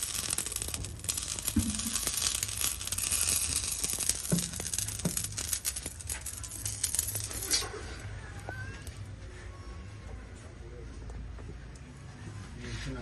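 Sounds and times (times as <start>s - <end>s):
fire crackling: 0.0s - 10.1s.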